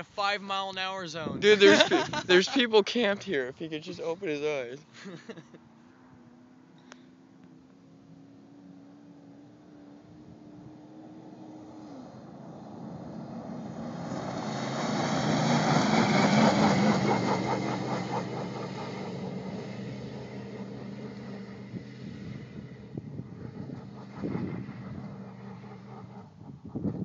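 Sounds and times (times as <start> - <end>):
pickup truck driving past: 5.4 - 27.0.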